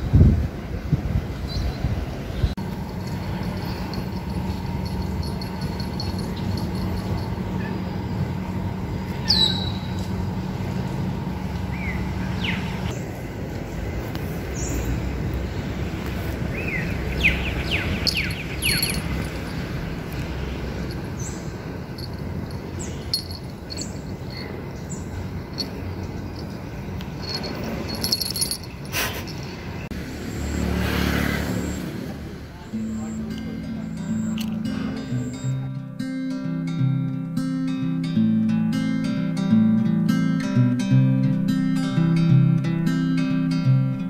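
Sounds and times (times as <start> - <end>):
birds chirping: 1.4 - 30.8, 31.5 - 35.7
steady low hum: 2.5 - 29.3.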